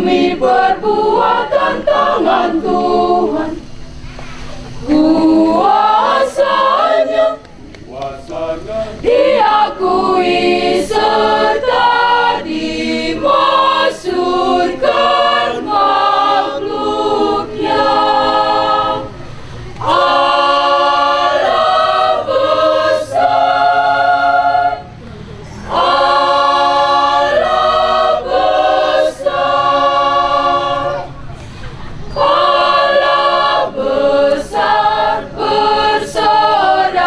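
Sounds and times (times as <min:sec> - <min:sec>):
mixed choir singing unaccompanied: 0:00.0 - 0:37.0.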